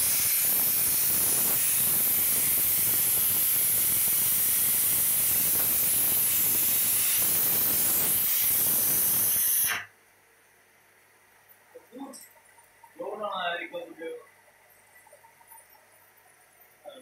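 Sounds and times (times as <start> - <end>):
torch flame hissing: 0.0 - 9.9.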